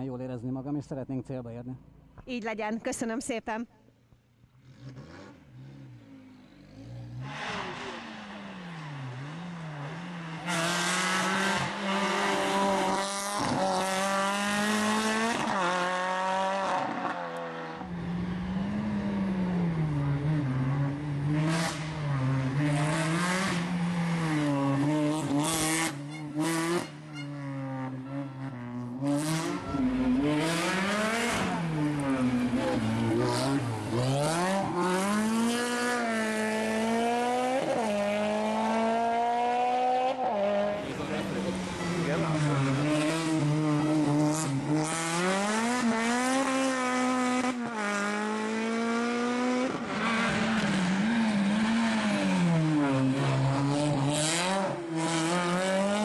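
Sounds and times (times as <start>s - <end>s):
rally car engine revving: 4.4s - 56.0s
tyres skidding: 16.8s - 39.4s.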